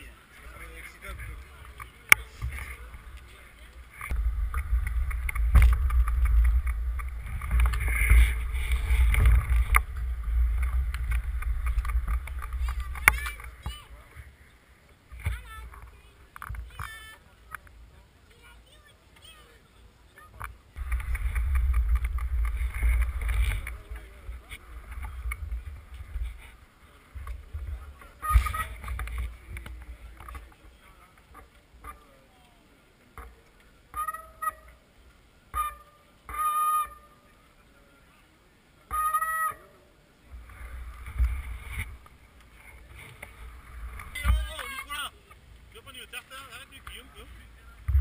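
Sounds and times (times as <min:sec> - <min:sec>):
wind and handling rumble: 0:00.0 - 0:18.4, 0:20.4 - 0:31.8, 0:40.2 - 0:48.0
faint crowd voices: 0:00.0 - 0:48.0.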